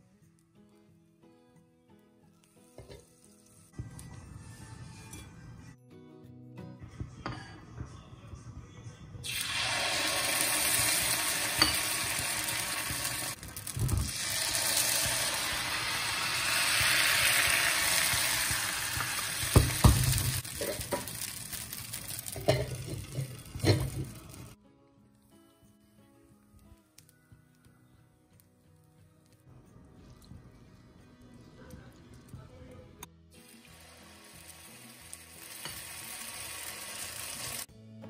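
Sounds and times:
batter sizzling in a hot pan: 9.3s - 24.6s, 33.4s - 37.7s.

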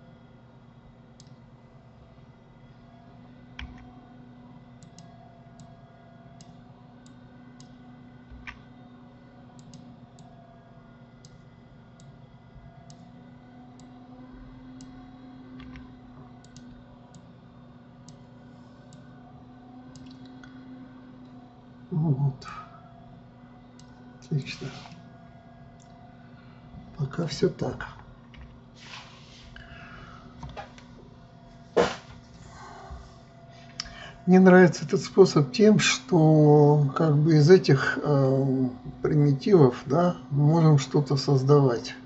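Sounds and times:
steady low hum: 0.0s - 42.0s
computer mouse clicks: 1.2s - 1.4s, 3.6s - 3.9s, 4.8s - 5.7s, 9.6s - 10.3s, 13.8s - 14.0s, 15.6s - 17.3s, 19.9s - 20.5s.

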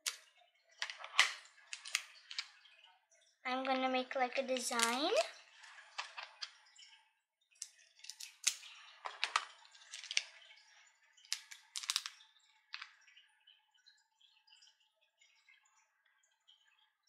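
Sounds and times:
plastic packet crinkling and clicking: 0.8s - 2.6s, 4.4s - 6.6s, 8.0s - 10.4s, 11.4s - 12.2s.

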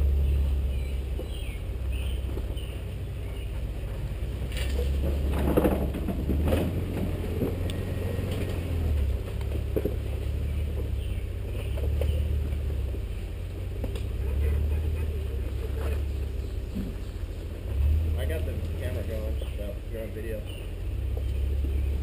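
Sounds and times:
vehicle engine rumble: 0.0s - 22.0s
vehicle body knocks and creaks: 3.9s - 13.1s, 15.7s - 18.0s.

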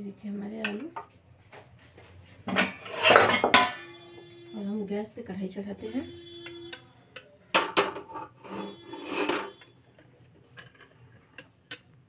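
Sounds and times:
metal pot clanking on stove: 2.5s - 3.9s, 7.6s - 9.6s.

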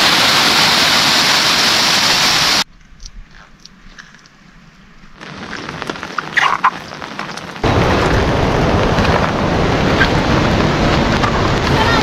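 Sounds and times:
rain falling: 0.0s - 2.6s, 5.1s - 12.0s.

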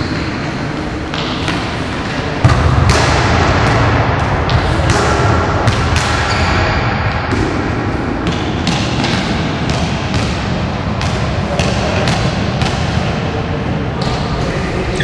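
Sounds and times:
steady background noise: 0.0s - 15.0s
basketball bouncing on floor: 8.2s - 12.9s.

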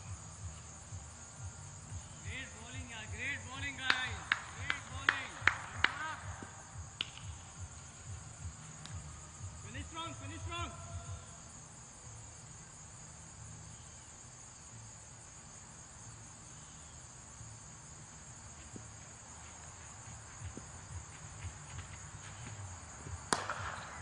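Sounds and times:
insects chirping: 0.0s - 24.0s
cricket bat striking ball: 3.8s - 7.8s, 23.2s - 24.0s.

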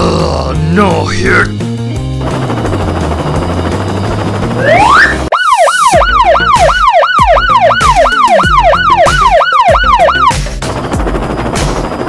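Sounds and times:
electronic police siren yelp: 4.6s - 10.4s.

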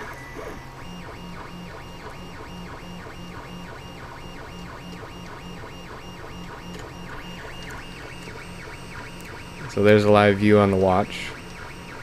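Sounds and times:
printer stepper motors whining: 0.0s - 12.0s.

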